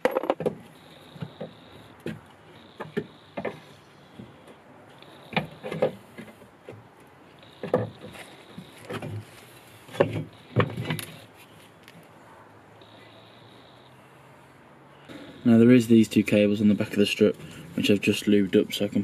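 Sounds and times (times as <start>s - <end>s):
metal knocks clinks and scrapes: 0.0s - 0.5s.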